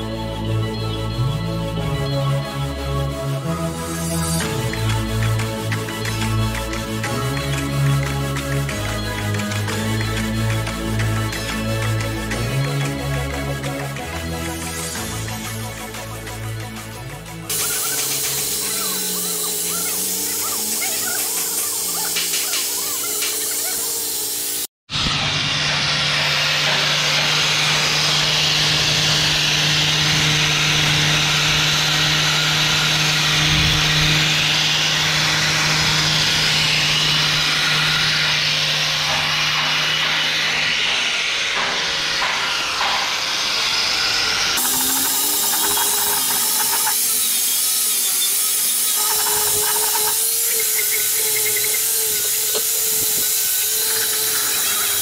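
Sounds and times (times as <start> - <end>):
angle grinder grinding steel: 3.3 - 55.0.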